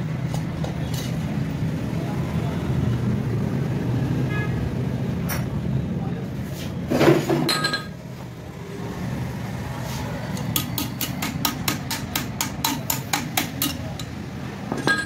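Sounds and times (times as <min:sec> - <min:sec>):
hammer tapping on engine cylinder: 0:10.4 - 0:14.2.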